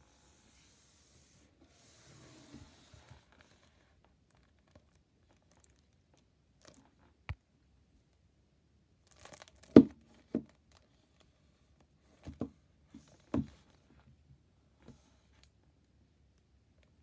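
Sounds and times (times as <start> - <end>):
plastic wrap rustling: 4.2 - 6.9.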